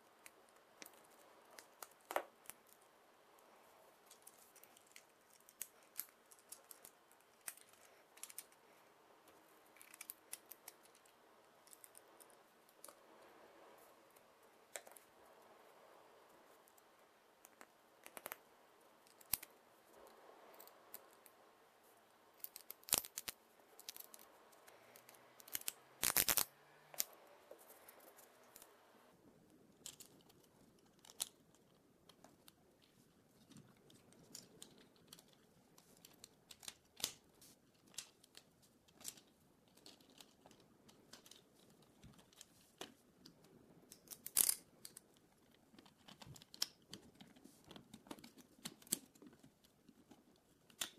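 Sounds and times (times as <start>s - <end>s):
plastic parts clicking and snapping: 4.0s - 13.0s, 19.0s - 19.5s, 22.4s - 27.2s, 29.8s - 50.9s.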